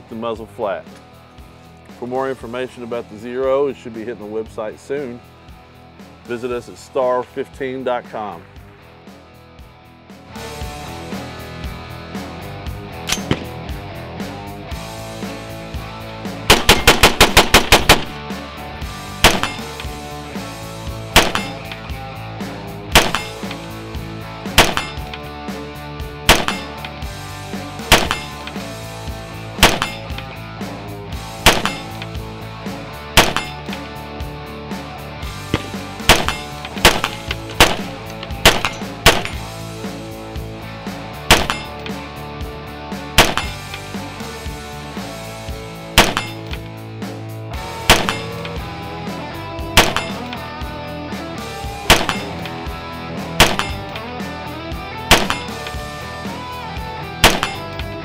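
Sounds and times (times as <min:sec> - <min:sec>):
background music: 0:00.0 - 0:58.0
rifle shots: 0:13.1 - 0:13.6, 0:16.5 - 0:18.2, 0:19.2 - 0:19.9, 0:21.2 - 0:21.8, 0:22.9 - 0:23.6, 0:24.6 - 0:25.1, 0:26.3 - 0:26.8, 0:27.9 - 0:28.5, 0:29.6 - 0:30.2, 0:31.4 - 0:32.1, 0:33.2 - 0:33.7, 0:35.5 - 0:39.5, 0:41.3 - 0:41.8, 0:43.2 - 0:43.8, 0:46.0 - 0:46.6, 0:47.8 - 0:48.6, 0:49.8 - 0:50.4, 0:51.9 - 0:52.5, 0:53.4 - 0:54.0, 0:55.1 - 0:55.8, 0:57.2 - 0:57.8.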